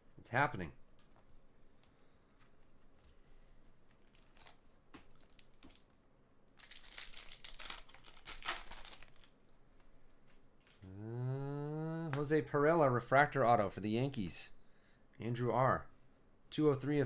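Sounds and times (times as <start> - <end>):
foil wrapper tearing and crinkling: 3.9 - 6.0, 6.6 - 9.3.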